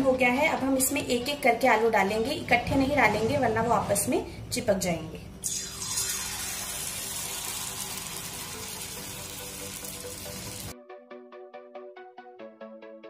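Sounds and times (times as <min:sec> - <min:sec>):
potatoes sizzling in hot oil: 0:05.5 - 0:10.7.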